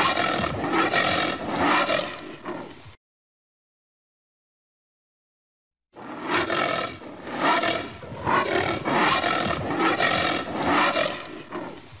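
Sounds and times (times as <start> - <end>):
anteater growling: 6.0 - 11.9.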